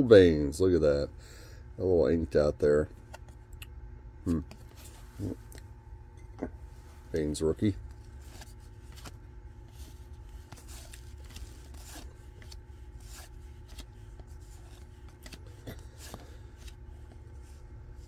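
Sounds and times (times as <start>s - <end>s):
low room hum: 0.0s - 18.0s
cardboard cards scraping and clicking: 7.9s - 18.0s.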